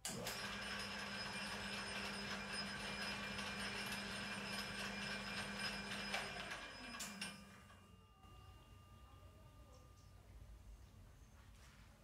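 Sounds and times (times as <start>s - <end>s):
lathe motor humming: 0.2s - 7.4s.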